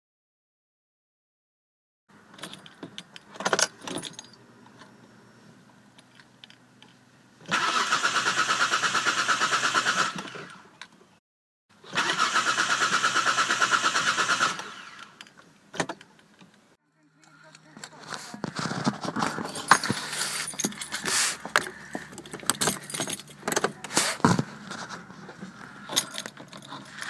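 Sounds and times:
keys jingling in ignition: 2.3 - 4.4, 19.1 - 24.2, 25.6 - 27.0
starter motor cranking: 7.4 - 10.6, 11.8 - 15.2.

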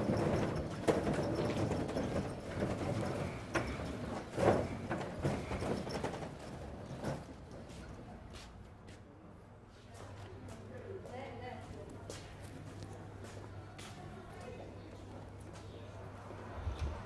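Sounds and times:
metal hand cart rattling on paving: 0.0 - 7.7.

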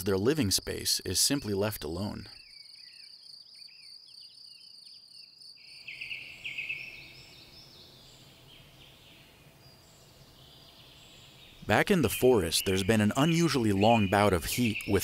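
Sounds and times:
insects trilling and chirping: 0.0 - 15.0.

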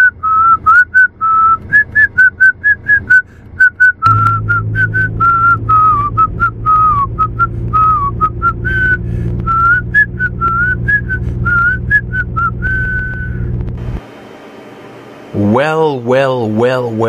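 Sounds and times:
man whistling a tune: 0.0 - 13.5
car engine drone and road noise: 0.0 - 15.6.

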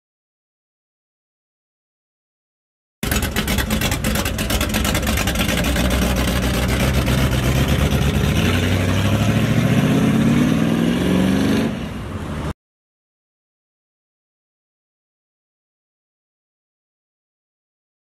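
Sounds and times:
car engine accelerating: 3.0 - 12.5.

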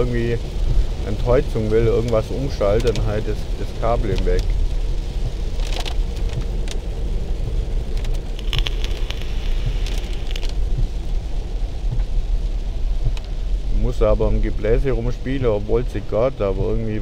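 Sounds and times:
road and engine rumble: 0.0 - 17.0
light ticks: 1.8 - 3.2, 4.0 - 6.9, 7.5 - 11.1, 11.8 - 12.2, 13.0 - 13.4.

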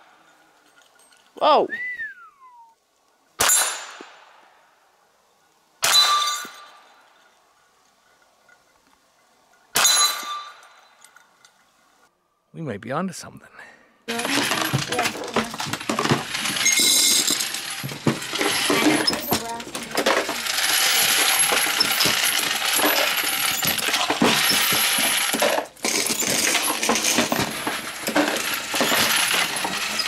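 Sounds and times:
metallic clinking of brass cases: 14.3 - 30.0.

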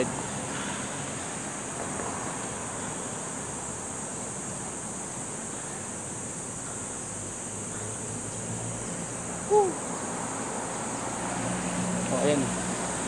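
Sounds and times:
traffic noise: 0.0 - 13.0
wind: 0.0 - 13.0
short voiced sound: 9.5 - 9.8.

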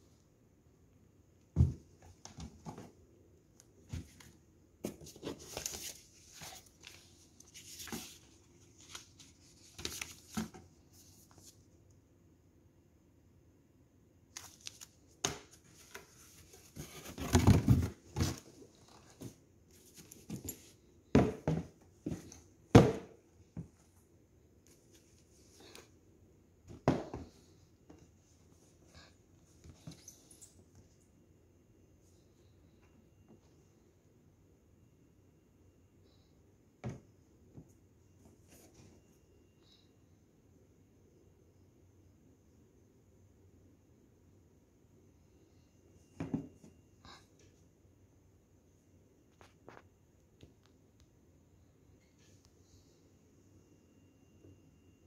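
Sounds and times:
cardboard and paper rustling: 3.9 - 11.6, 14.4 - 22.4.

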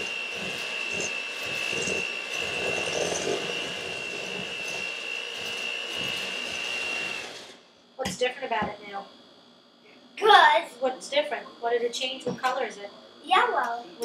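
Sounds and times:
electric hand mixer whining: 0.0 - 7.6.

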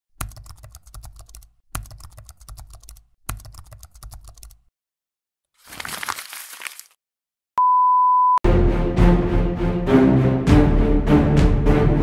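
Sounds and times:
rapid keyboard keystroke clicks: 0.2 - 4.7.

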